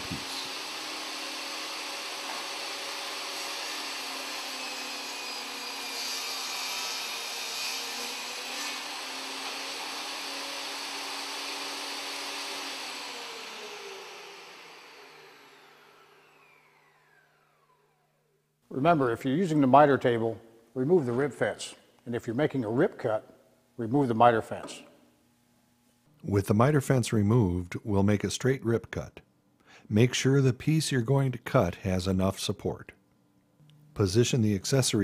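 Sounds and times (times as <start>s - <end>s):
saw whine winding down: 0.0s - 3.4s, 9.4s - 18.4s
saw blade cutting wood: 0.0s - 16.9s
table saw running: 0.0s - 18.3s.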